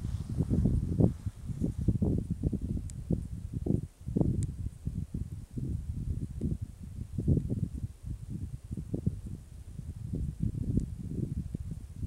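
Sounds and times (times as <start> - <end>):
wind buffeting microphone: 0.0 - 12.0
faint high tick: 4.4 - 4.6, 6.4 - 6.6, 10.7 - 10.9.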